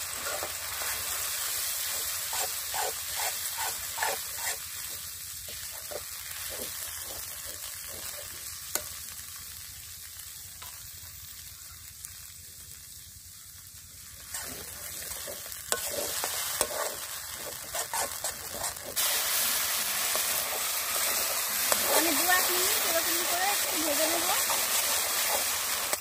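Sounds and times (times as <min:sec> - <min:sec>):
spatula scraping pan: 0:00.0 - 0:08.4, 0:14.2 - 0:19.2, 0:19.9 - 0:26.0
paste sizzling in hot oil: 0:00.0 - 0:26.0.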